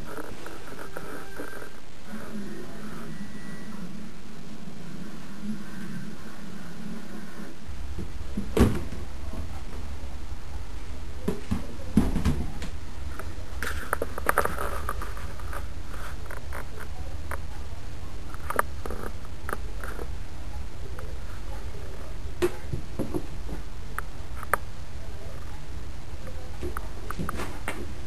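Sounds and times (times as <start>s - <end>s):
steady low hum: 0.0s - 28.0s
wastebasket knocking on vinyl floor: 11.3s - 12.7s.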